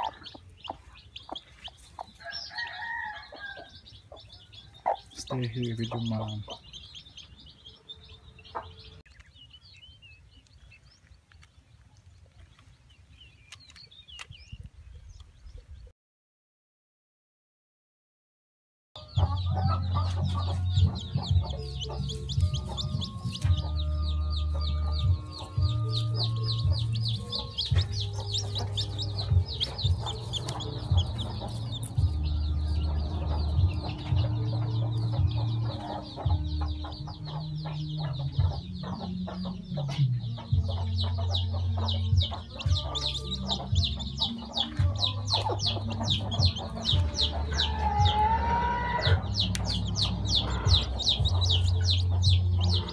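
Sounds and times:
chicks peeping: 0.0s - 15.9s, 19.0s - 52.9s
background music with bass line: 19.0s - 52.9s.

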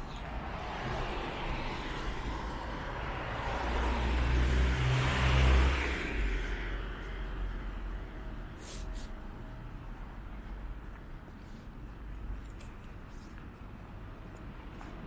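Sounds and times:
vehicle passing by: 0.0s - 10.2s
street traffic: 0.0s - 15.0s.

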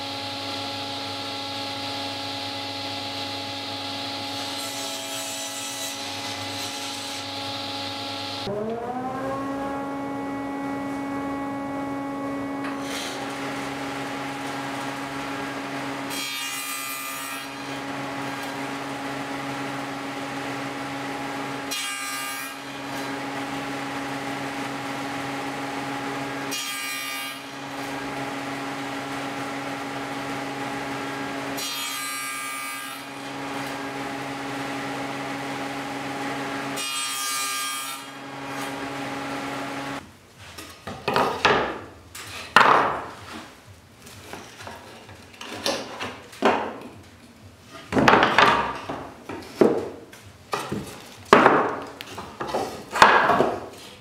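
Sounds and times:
table saw running: 0.0s - 40.0s
wooden boards clattering: 42.5s - 43.5s, 47.9s - 53.7s.

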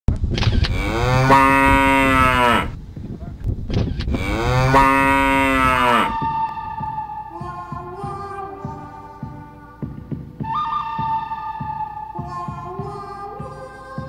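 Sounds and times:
cow mooing: 0.7s - 2.8s, 4.1s - 6.2s.

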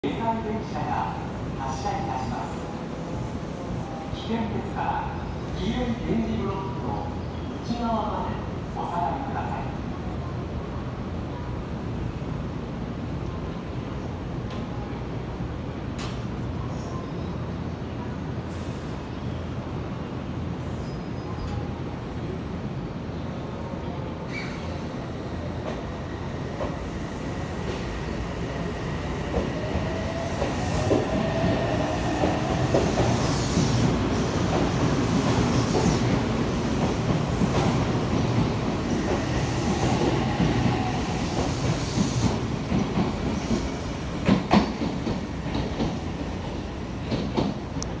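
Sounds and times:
electric train rumbling past: 23.7s - 48.0s.

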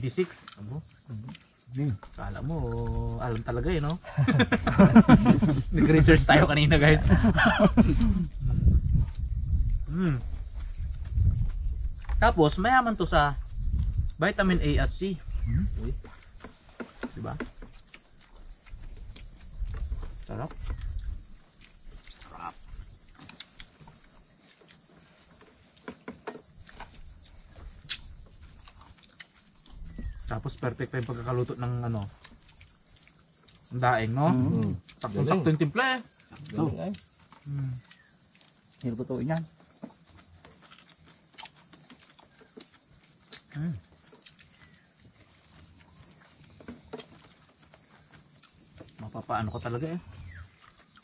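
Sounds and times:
insects chirping: 0.0s - 51.0s
person murmuring: 2.4s - 8.4s, 9.9s - 10.3s, 34.1s - 35.6s.

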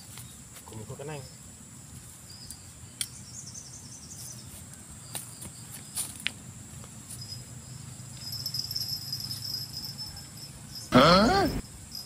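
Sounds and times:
crickets trilling: 0.0s - 12.0s.

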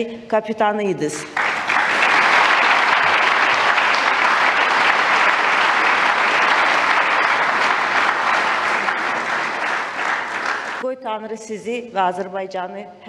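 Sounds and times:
audience applauding: 1.3s - 10.8s.

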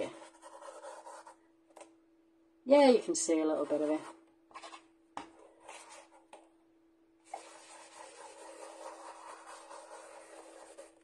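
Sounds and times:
ink tool scratchy swishing on card: 7.3s - 11.0s.

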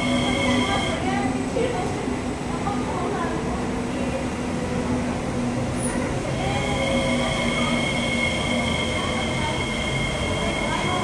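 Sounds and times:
high-pitched train squeal: 0.0s - 1.1s, 5.8s - 11.0s
train wheels rumbling: 0.0s - 11.0s.

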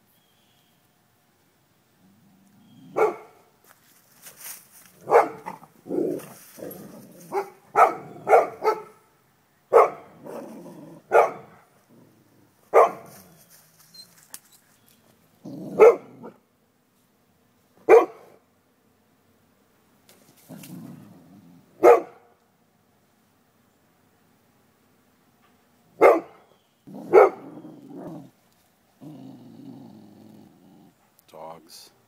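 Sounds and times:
dogs growling: 2.0s - 3.2s, 5.0s - 8.8s, 10.0s - 13.5s, 15.4s - 16.4s, 20.4s - 21.8s, 26.9s - 31.1s
dogs barking: 2.9s - 3.5s, 5.0s - 9.1s, 9.7s - 11.6s, 12.7s - 13.2s, 15.7s - 16.4s, 17.8s - 18.4s, 21.8s - 22.3s, 26.0s - 28.3s.

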